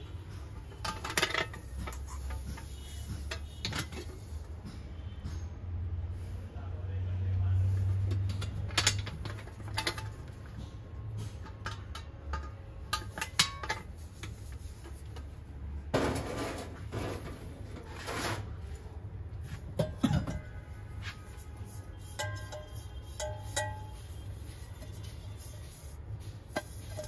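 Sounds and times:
metallic clinks and knocks: 0.0 - 5.4, 8.0 - 15.4, 19.7 - 20.7, 21.3 - 27.0
rustling and scraping: 0.0 - 5.4, 7.6 - 27.0.

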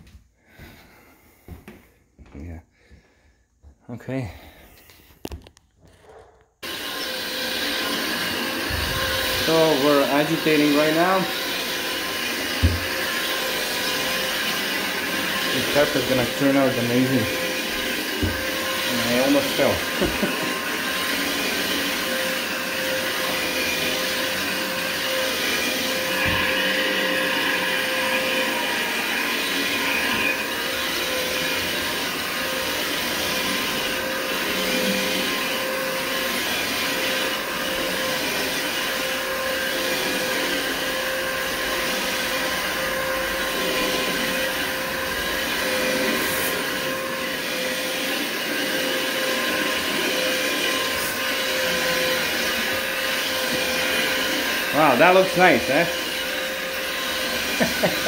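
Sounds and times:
carpet machine motor hum: 5.9 - 22.9, 57.1 - 58.0
brush scrubbing carpet: 6.0 - 58.0.

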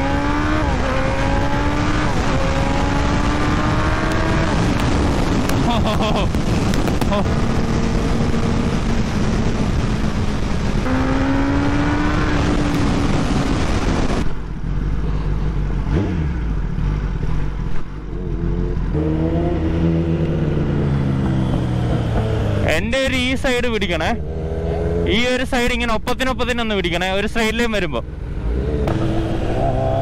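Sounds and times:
heavy wind noise: 0.0 - 16.3
motorcycle engine at speed: 0.0 - 22.9, 24.1 - 25.2, 28.0 - 30.0.

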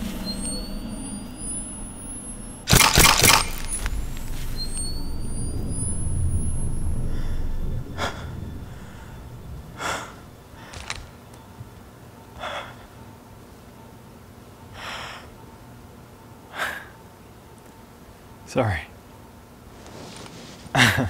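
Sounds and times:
low rumble: 3.4 - 10.7.

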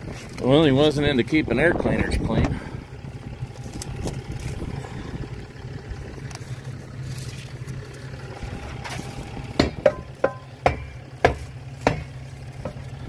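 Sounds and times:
steady low hum: 0.0 - 13.0
sharp knocks: 9.5 - 12.8.

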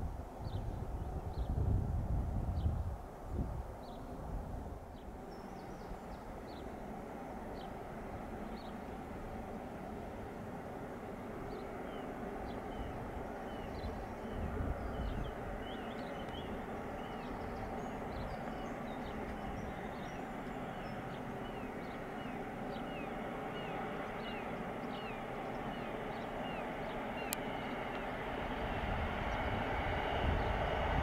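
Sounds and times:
electric train rumbling: 0.0 - 31.0
small birds chirping: 4.9 - 9.8, 10.9 - 30.7.

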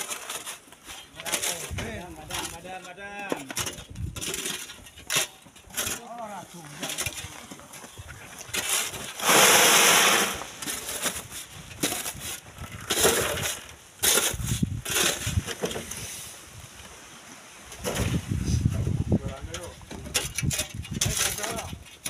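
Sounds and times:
knocks and scrapes in sand and stone: 0.0 - 17.0, 17.7 - 22.0.

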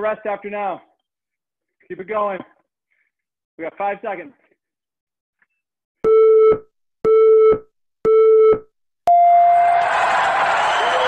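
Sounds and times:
long high beep: 6.1 - 9.8.

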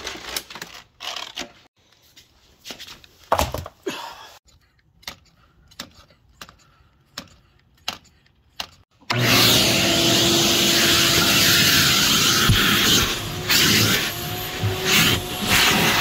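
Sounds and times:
vacuum cleaner running: 9.1 - 16.0.

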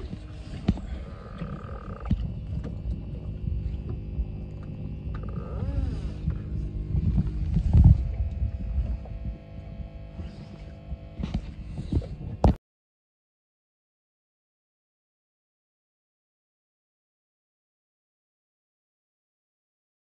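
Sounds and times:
boat engine running: 0.0 - 12.6.

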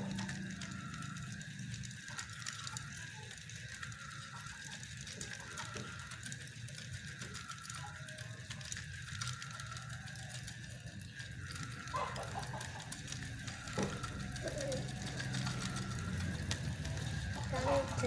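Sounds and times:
fishing reel clicking: 0.0 - 12.1.

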